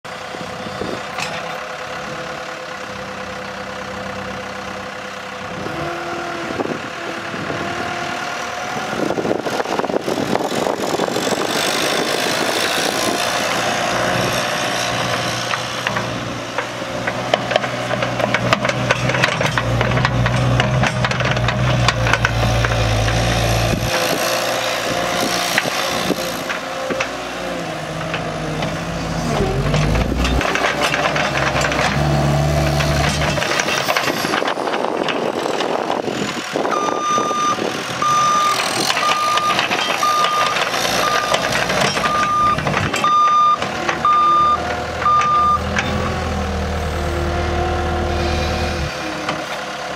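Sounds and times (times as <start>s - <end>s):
diesel engine running: 0.1s - 49.9s
backup alarm beeping: 36.8s - 41.4s, 42.0s - 45.7s.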